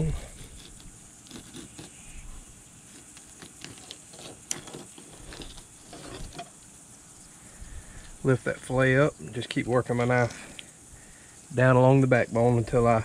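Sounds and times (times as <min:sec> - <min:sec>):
knife scraping over fish bones: 0:00.0 - 0:06.5.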